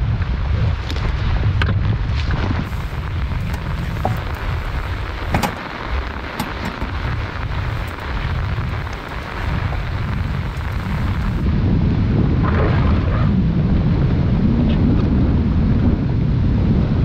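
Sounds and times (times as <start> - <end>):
wind buffeting microphone: 0.0 - 17.0
heavy rain: 2.0 - 12.1
sharp taps of raindrops: 2.6 - 11.4.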